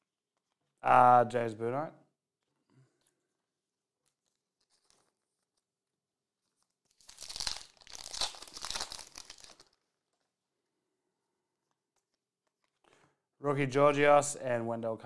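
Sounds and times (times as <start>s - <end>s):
foil wrapper tearing and crinkling: 6.6s - 9.9s.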